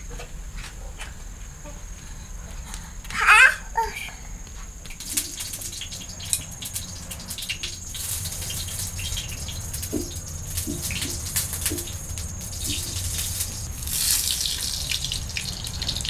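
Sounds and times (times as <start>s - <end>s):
small water spatters: 4.9s - 16.0s
water splashing and trickling: 4.9s - 16.0s.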